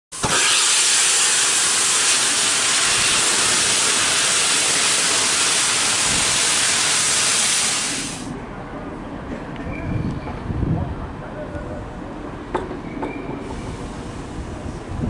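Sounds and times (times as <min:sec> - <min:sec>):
steam locomotive venting steam: 0:00.1 - 0:08.4, 0:12.9 - 0:15.0.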